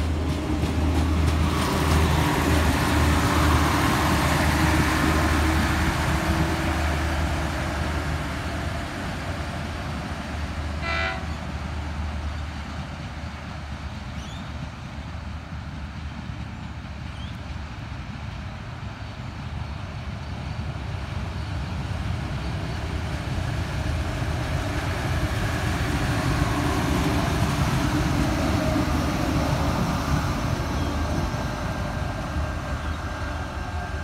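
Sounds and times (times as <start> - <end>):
diesel railcar engine hum: 0.0 - 34.0
wheel and rail noise: 0.0 - 34.0
train horn toot: 10.8 - 11.5.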